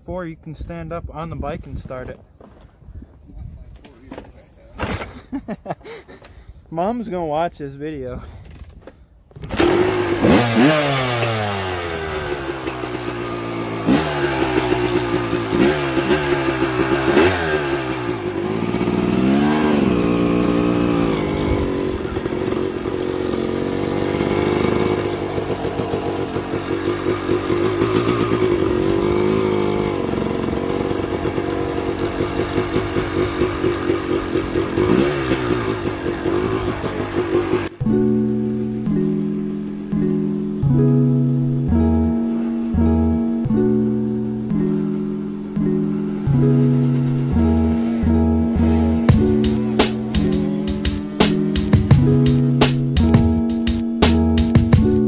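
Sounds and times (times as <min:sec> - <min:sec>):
dirt bike engine revving and idling: 0:09.4 - 0:37.9, 0:44.7 - 0:55.0.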